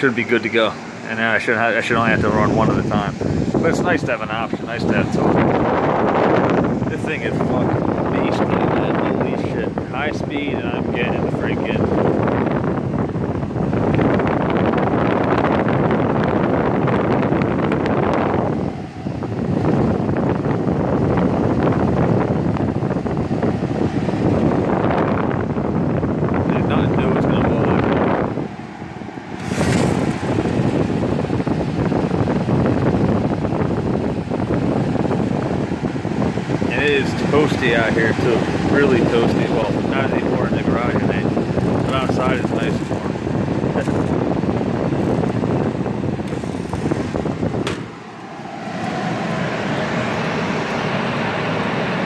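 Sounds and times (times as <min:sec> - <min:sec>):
air conditioner fan rushing: 0:00.0 - 0:52.0.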